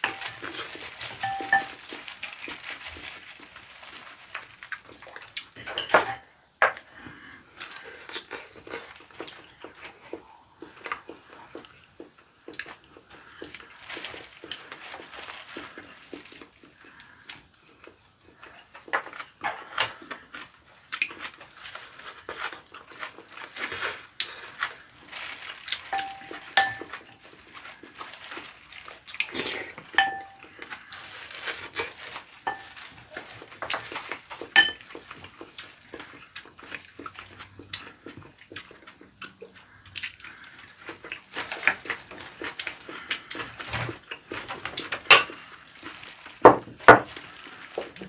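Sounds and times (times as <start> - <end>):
plastic gloves crinkling: 0.0 - 5.9, 7.5 - 10.0, 12.6 - 17.2, 21.1 - 38.0, 39.6 - 48.0.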